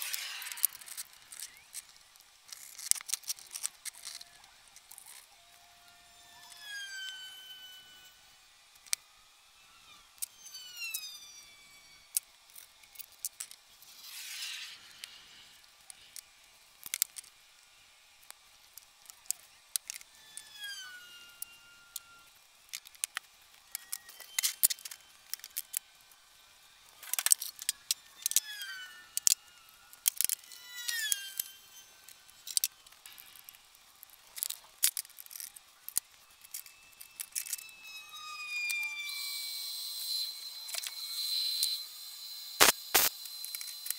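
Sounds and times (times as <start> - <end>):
short descending squeaks: 6.2 - 8.6, 9.5 - 12.2, 13.9 - 16.1, 20.1 - 22.4, 27.1 - 33.0, 36.3 - 43.9.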